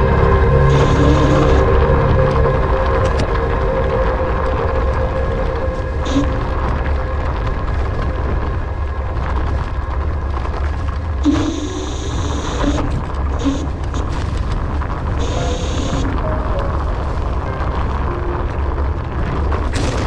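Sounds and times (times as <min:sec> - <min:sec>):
wind rumble on microphone: 0:00.0 - 0:20.0
tyre and ride noise: 0:06.0 - 0:20.0.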